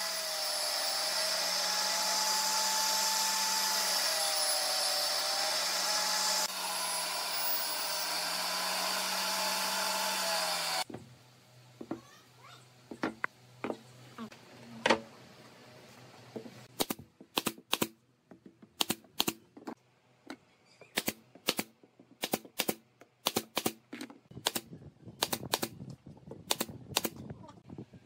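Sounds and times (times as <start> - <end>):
pneumatic nailer firing into wood: 21.0 - 23.8, 26.5 - 27.2.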